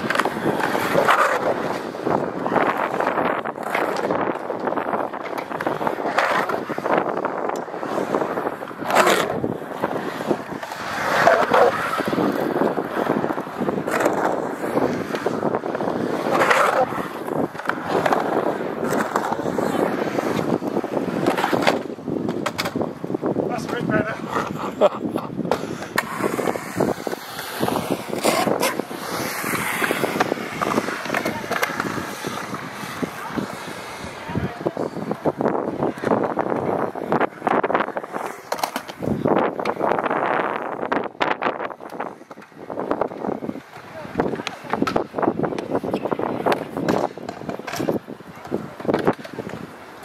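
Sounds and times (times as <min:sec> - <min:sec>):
skateboard clacks and knocks: 0:00.0 - 0:24.6, 0:25.3 - 0:50.0
skateboard wheels rolling on concrete: 0:00.0 - 0:50.0
wind buffeting microphone: 0:00.0 - 0:50.0.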